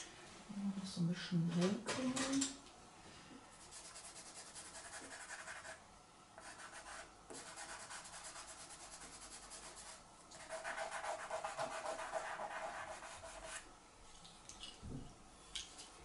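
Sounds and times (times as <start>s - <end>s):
pencil scratching on board: 3.7s - 5.8s, 6.4s - 13.6s.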